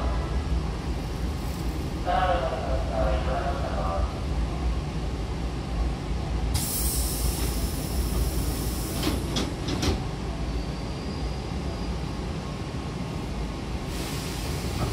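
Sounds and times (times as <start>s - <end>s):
train doors hissing: 6.5s - 10.1s, 13.9s - 14.9s.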